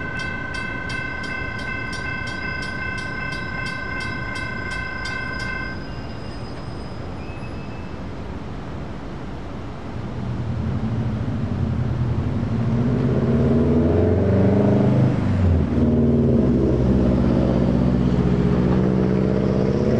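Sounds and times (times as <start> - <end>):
car engine accelerating hard: 10.4 - 19.9.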